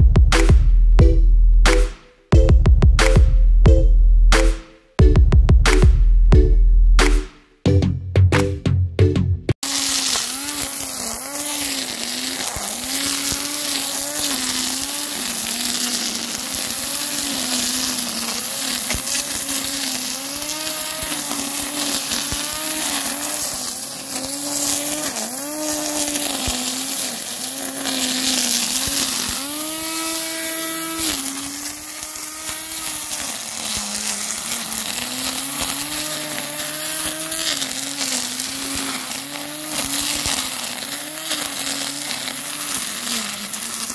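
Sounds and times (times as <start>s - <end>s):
electric grass trimmer whining: 9.6s - 43.9s
nylon line swishing through grass: 9.6s - 43.9s.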